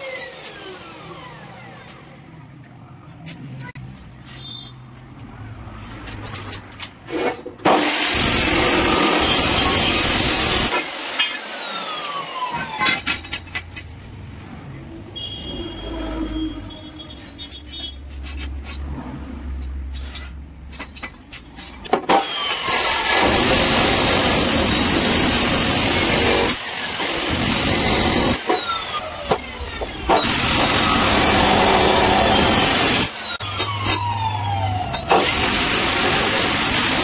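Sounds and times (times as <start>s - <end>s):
abrasive saw cutting steel: 7.2s - 13.4s, 21.9s - 37.0s.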